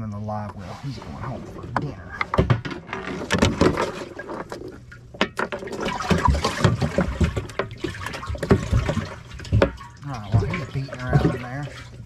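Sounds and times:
water splashing and sloshing: 0:00.3 - 0:12.0
knocks and clunks from boat: 0:01.8 - 0:11.5.

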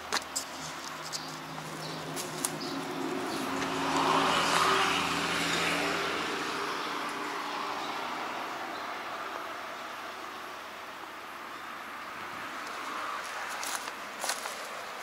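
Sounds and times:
motor vehicle passing by: 0:00.6 - 0:09.9.

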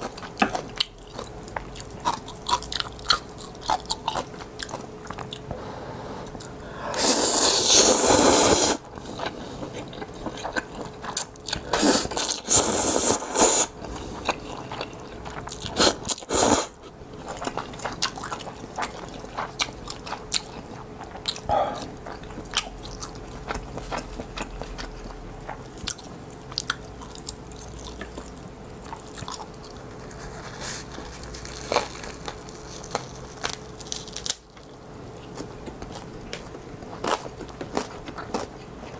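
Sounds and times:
slurping noodles: 0:07.0 - 0:08.8, 0:11.7 - 0:13.7
wet chewing: 0:17.2 - 0:38.9.

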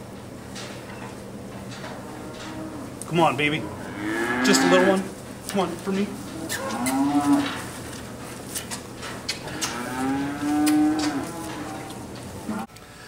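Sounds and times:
calves mooing: 0:01.8 - 0:05.2, 0:06.2 - 0:07.7, 0:09.3 - 0:12.7.

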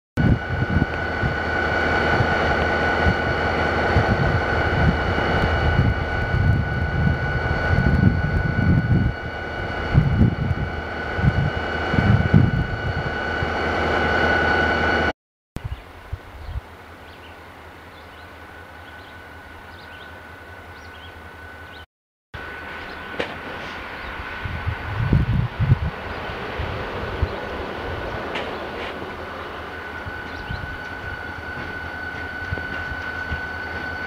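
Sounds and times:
locomotive engine rumble: 0:00.2 - 0:15.1, 0:22.4 - 0:34.0
high whine: 0:00.2 - 0:15.8, 0:16.8 - 0:34.0.

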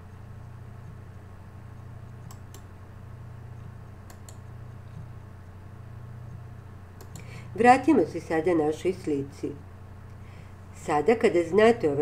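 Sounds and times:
steady low hum: 0:00.0 - 0:12.0
computer mouse clicks: 0:01.8 - 0:02.7, 0:03.5 - 0:05.3, 0:07.0 - 0:07.3.

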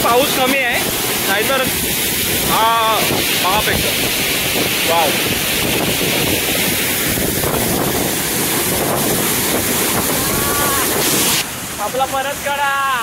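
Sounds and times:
wind buffeting microphone: 0:00.0 - 0:11.4
waterfall rushing: 0:00.0 - 0:13.0.

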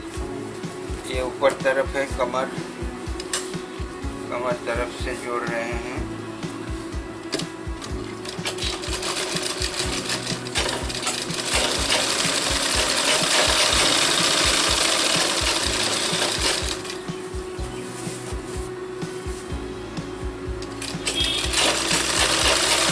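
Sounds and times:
sewing machine stitching: 0:08.2 - 0:17.0, 0:20.8 - 0:22.9.

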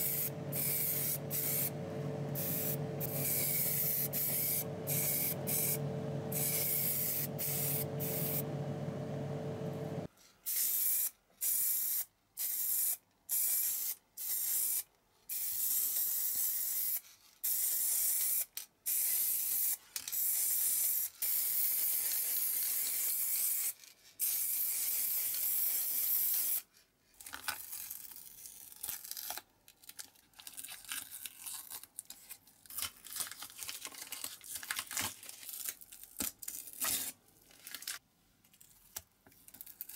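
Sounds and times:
spray paint hissing: 0:00.0 - 0:01.7, 0:02.3 - 0:08.4
low hum: 0:00.0 - 0:10.1
masking tape peeling and crinkling: 0:27.2 - 0:39.9.

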